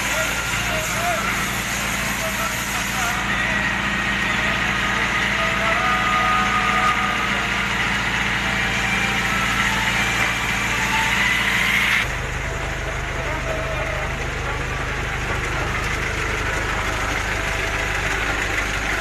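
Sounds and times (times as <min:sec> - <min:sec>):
water hissing: 0:00.0 - 0:03.3
fire truck engine running: 0:00.0 - 0:19.0.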